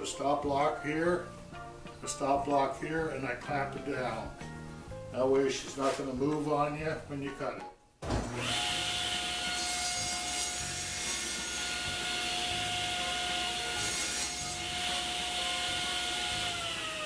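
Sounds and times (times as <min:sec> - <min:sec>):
table saw whine: 0:08.0 - 0:17.0
saw blade cutting wood: 0:08.2 - 0:17.0.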